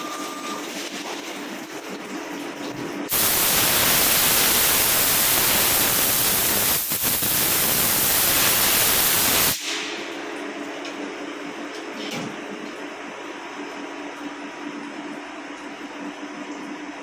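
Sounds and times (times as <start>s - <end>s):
low machine hum: 0.0s - 17.0s
compressed air blow gun hissing: 3.1s - 9.6s.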